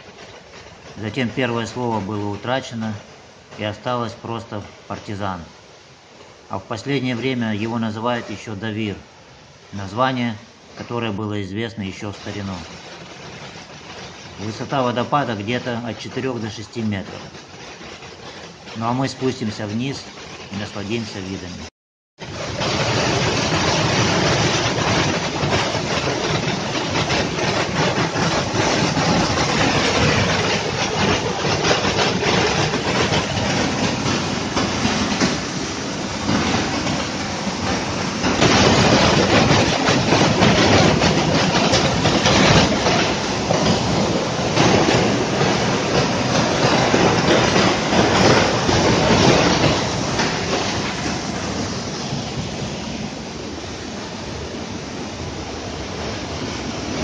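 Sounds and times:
waterfall rushing: 22.2 - 57.0.

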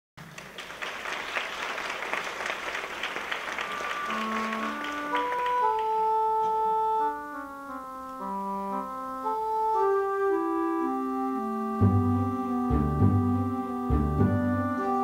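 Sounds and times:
audience applause: 0.2 - 6.2
keyboard playing organ-like notes: 3.4 - 15.0.

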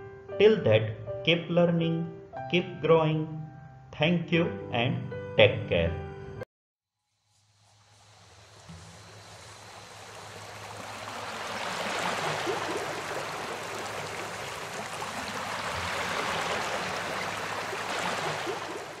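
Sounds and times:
surf washing on beach: 7.5 - 19.0.

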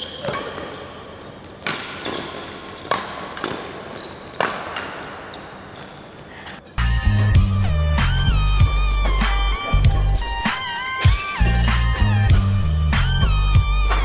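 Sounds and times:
rackets hitting shuttlecock: 0.0 - 6.0
shoe squeaks on court floor: 0.0 - 6.4.

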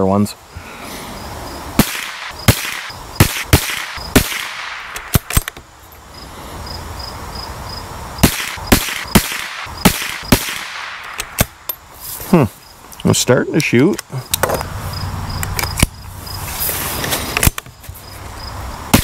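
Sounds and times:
rifle shots echoing: 1.8 - 5.5, 8.2 - 11.6.

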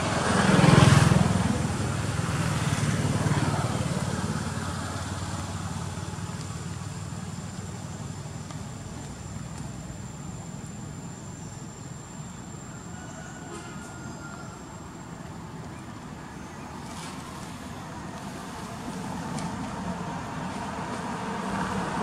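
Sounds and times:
vehicle passing by: 0.0 - 8.0, 16.8 - 22.0.

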